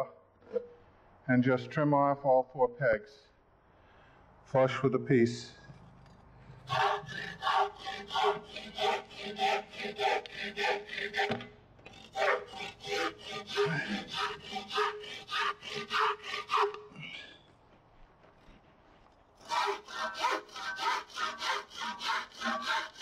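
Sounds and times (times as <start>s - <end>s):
handsaw cutting wood: 6.7s - 16.8s, 19.4s - 23.0s.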